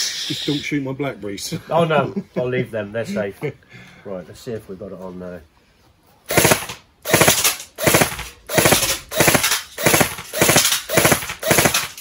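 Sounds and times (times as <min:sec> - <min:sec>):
airsoft rifle burst fire: 0:06.3 - 0:12.0.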